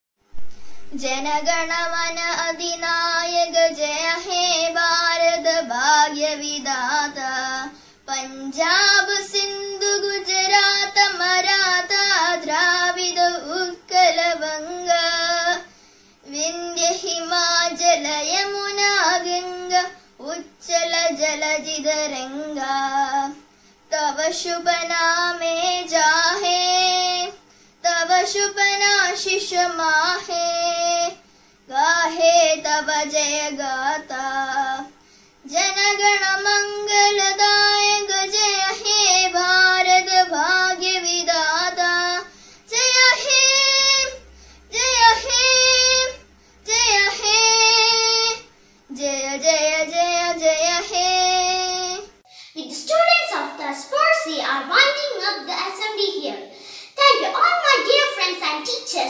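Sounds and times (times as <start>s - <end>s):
girl singing unaccompanied: 0.3s - 59.0s.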